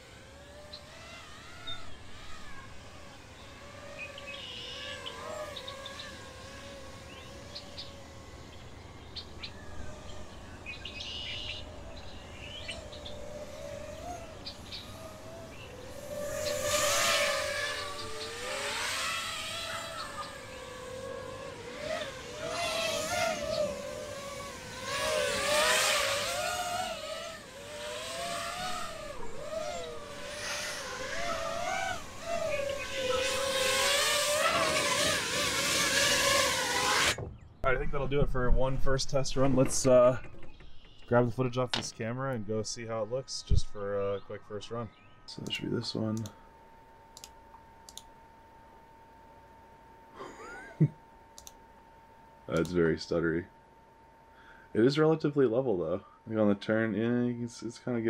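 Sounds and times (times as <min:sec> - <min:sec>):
drone motors whining: 0:00.0 - 0:58.0.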